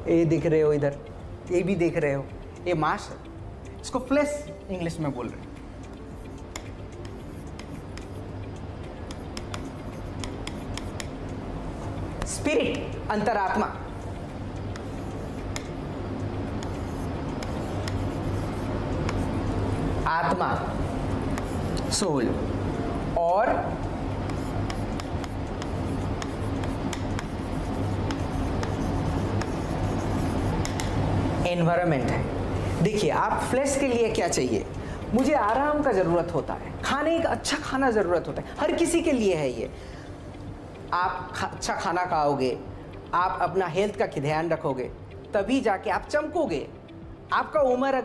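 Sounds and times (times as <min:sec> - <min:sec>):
low steady hum: 0:00.0 - 0:48.0
pen scratching on paper: 0:06.2 - 0:08.2, 0:09.1 - 0:11.1, 0:14.7 - 0:15.7, 0:16.6 - 0:19.4, 0:20.8 - 0:22.1, 0:24.2 - 0:30.8.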